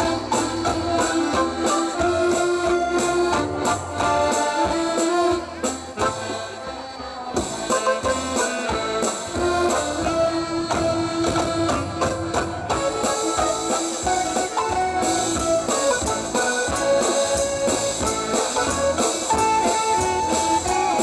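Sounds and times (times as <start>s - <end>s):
accordions: 0.0s - 21.0s
steady drum beat: 0.0s - 21.0s
electronic keyboard melody: 7.7s - 21.0s.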